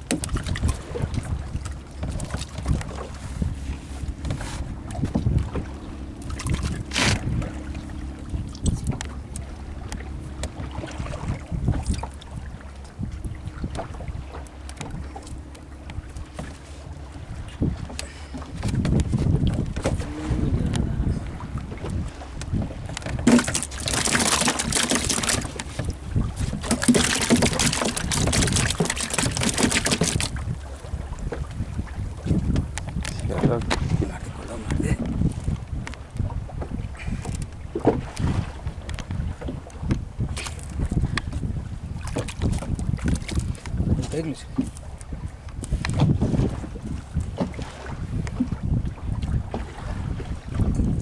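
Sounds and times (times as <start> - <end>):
water splashing: 0.0 - 32.3
boat engine running: 0.0 - 51.0
wind on microphone: 0.0 - 51.0.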